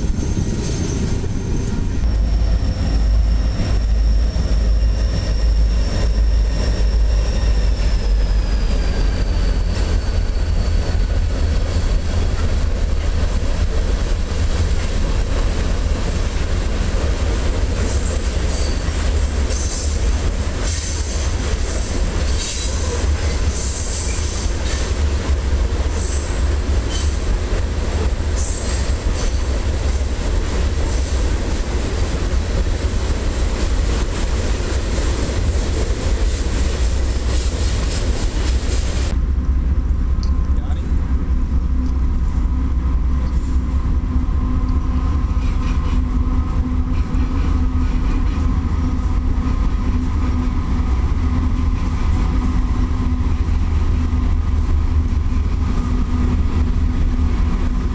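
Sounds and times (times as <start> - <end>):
freight train cars rumbling: 0.0 - 57.9
high wheel squeal: 0.1 - 11.8, 17.8 - 20.0
short wheel squeals and scrapes: 0.2 - 10.9, 17.8 - 20.0.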